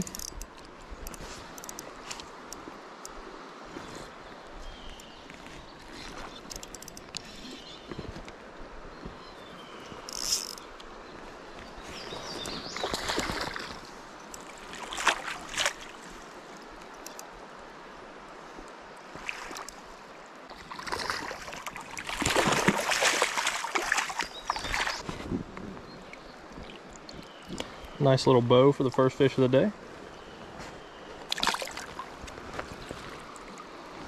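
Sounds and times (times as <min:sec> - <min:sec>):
stream flowing: 0:00.0 - 0:34.0
fish splashing in water: 0:12.8 - 0:13.8, 0:20.6 - 0:25.0, 0:31.3 - 0:32.1.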